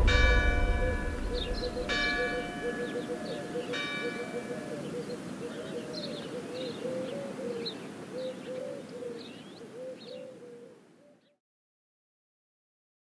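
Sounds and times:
small birds chirping: 0:01.4 - 0:11.4
pigeon cooing: 0:02.6 - 0:11.2.

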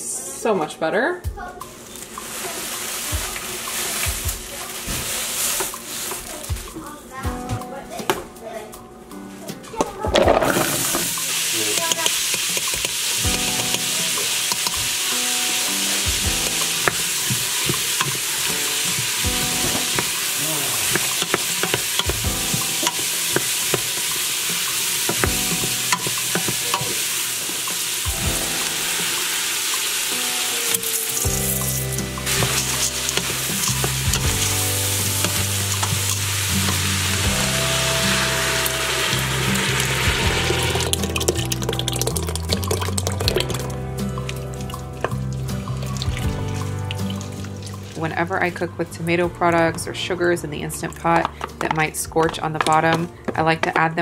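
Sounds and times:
vegetables sizzling in grease: 0:01.6 - 0:06.8, 0:10.3 - 0:48.2
wooden spoon scraping a pot: 0:15.7 - 0:27.9.

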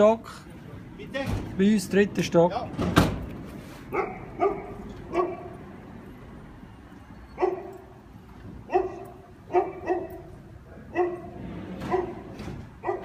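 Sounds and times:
dog barking: 0:03.9 - 0:05.6, 0:07.4 - 0:07.8, 0:08.7 - 0:10.3, 0:10.9 - 0:13.0.

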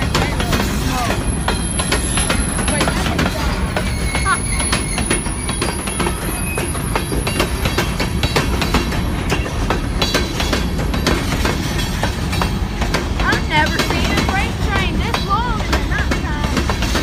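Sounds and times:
train cars rumbling past: 0:00.0 - 0:17.0
wheels and couplers clicking: 0:00.0 - 0:17.0
high wheel squeals: 0:00.6 - 0:12.7.

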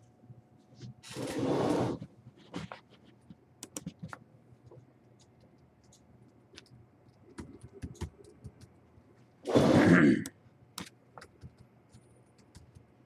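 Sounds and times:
light clicks and taps: 0:03.1 - 0:08.9.

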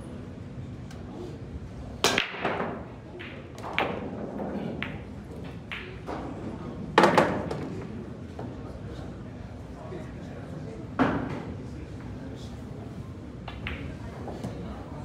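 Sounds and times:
low chatter: 0:00.0 - 0:15.0.

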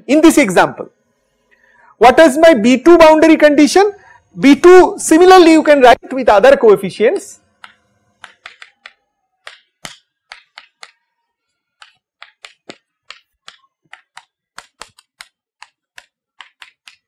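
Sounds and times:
chalk tapping on chalkboard: 0:07.1 - 0:11.1, 0:11.8 - 0:17.0.

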